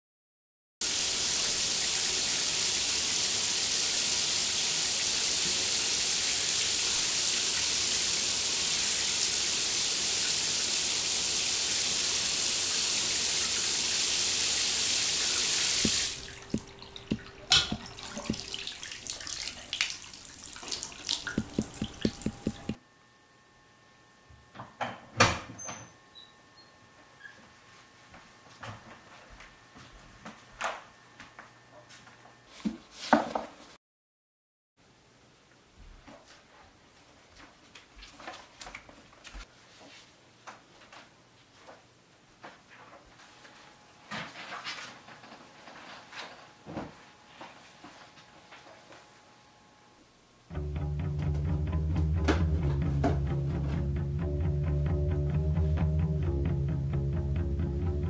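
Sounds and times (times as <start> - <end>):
water running from tap: 0.8 - 22.8.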